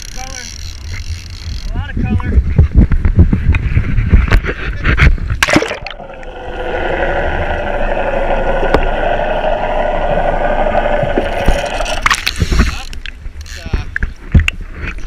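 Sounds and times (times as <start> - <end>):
muffled boat motor underwater: 0.0 - 15.0
water splashing and rushing: 5.2 - 13.4.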